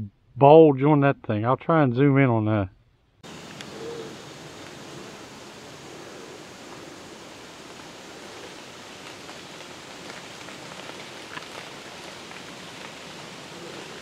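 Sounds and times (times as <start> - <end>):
woodland rustling hiss: 3.2 - 14.0
faint clicks: 3.4 - 3.8.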